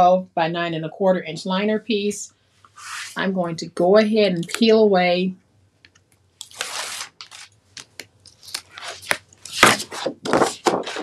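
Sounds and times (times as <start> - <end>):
backing paper peeled off tape: 6.4 - 7.5
paper rustling: 6.4 - 11.0.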